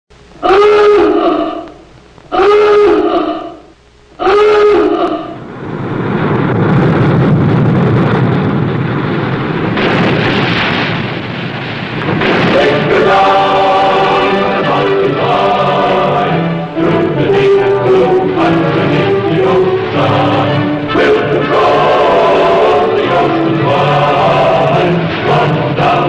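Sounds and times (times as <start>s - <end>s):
rushing rumbling noise: 0.1s - 26.0s
klaxon alarm blasts: 0.4s - 5.6s, 12.1s - 26.0s
music with a choir: 12.4s - 26.0s.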